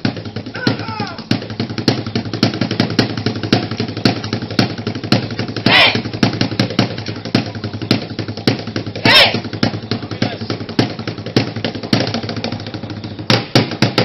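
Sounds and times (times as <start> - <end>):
fast drumming: 0.0 - 14.0
loud shout: 0.5 - 1.3, 5.7 - 6.1, 9.0 - 9.5.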